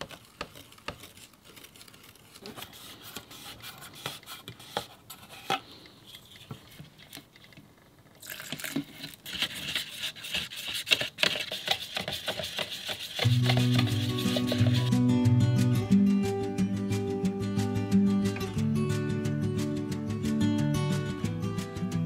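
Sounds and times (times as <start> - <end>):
stick stirring varnish: 0.0 - 7.2, 8.7 - 14.9.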